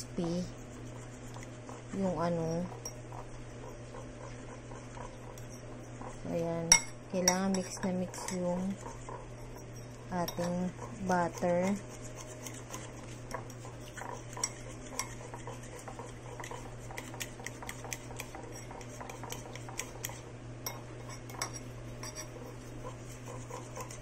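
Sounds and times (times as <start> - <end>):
fork whisking batter in bowl: 0.0 - 24.0.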